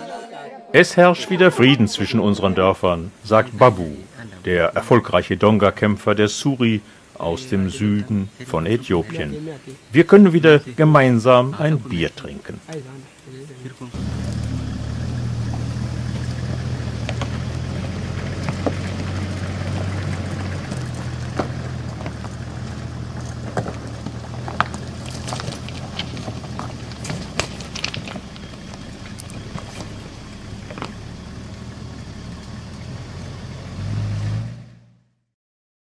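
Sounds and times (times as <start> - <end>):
vehicle engine driving off: 13.8 - 35.2.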